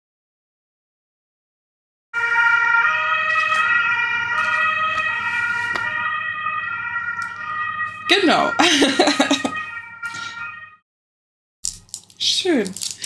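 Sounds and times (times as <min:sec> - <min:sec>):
two-tone ambulance siren: 0:02.1 - 0:10.8.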